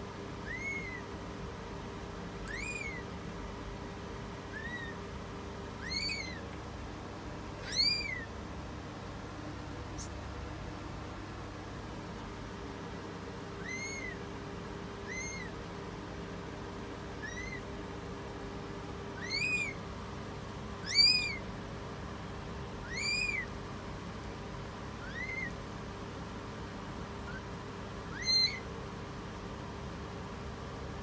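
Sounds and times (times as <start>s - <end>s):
kittens mewing: 0.4s - 1.2s, 2.4s - 3.1s, 4.5s - 5.1s, 5.7s - 6.6s, 7.5s - 8.4s, 13.5s - 14.3s, 15.0s - 15.6s, 17.1s - 17.7s, 19.2s - 19.8s, 20.8s - 21.5s, 22.8s - 23.6s, 25.0s - 25.6s, 27.1s - 28.7s.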